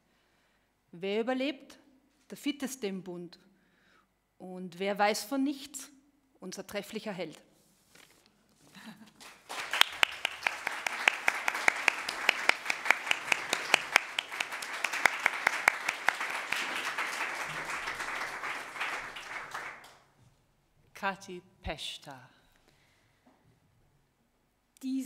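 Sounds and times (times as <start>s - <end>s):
audience applauding: 9.2s - 20.0s.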